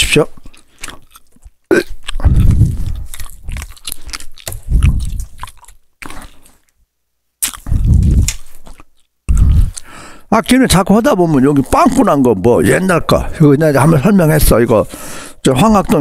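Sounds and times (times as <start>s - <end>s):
man chewing gum: 0.2s - 6.8s, 7.4s - 10.6s.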